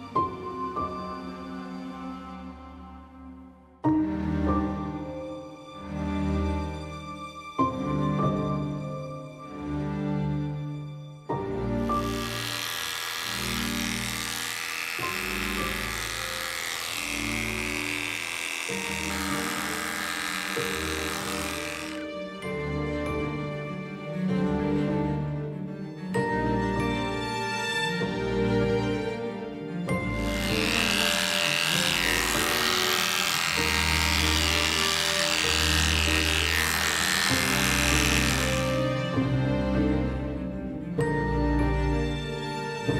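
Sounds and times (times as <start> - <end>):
electric dog clipper buzzing: 11.8 - 23.3, 29.9 - 39.4.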